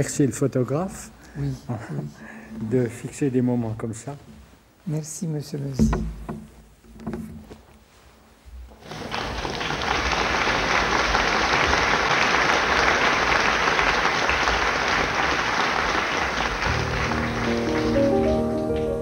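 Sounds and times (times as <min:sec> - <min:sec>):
audience applause: 0:08.8 - 0:19.0
piano notes: 0:16.5 - 0:19.0.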